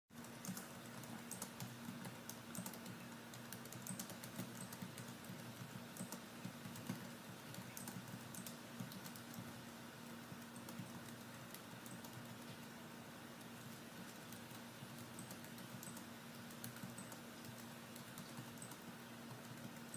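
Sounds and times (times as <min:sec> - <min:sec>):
faint low hum: 0:00.2 - 0:19.9
laptop keyboard typing: 0:00.2 - 0:19.9.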